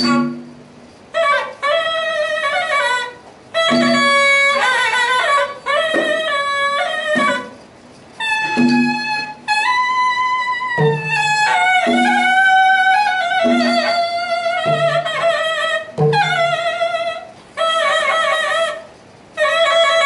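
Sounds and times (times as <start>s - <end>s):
double-reed oboe melody: 1.2s - 7.6s, 8.2s - 20.0s
barrel drum strokes: 3.6s - 4.6s, 7.1s - 9.6s.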